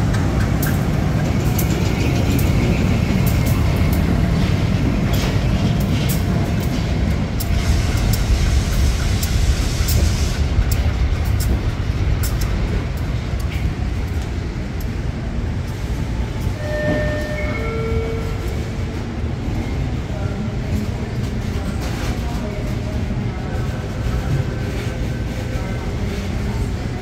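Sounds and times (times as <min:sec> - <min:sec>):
diesel locomotive rumble: 0:00.0 - 0:27.0
brief high tones: 0:16.6 - 0:18.6.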